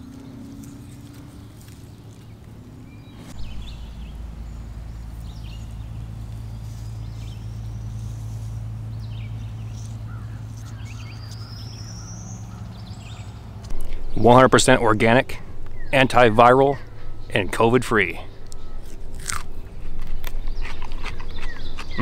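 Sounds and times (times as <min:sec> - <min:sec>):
birds chirping and calling: 0:00.0 - 0:22.0
steady low rumble: 0:00.0 - 0:22.0
long rising whistled notes: 0:02.7 - 0:09.3.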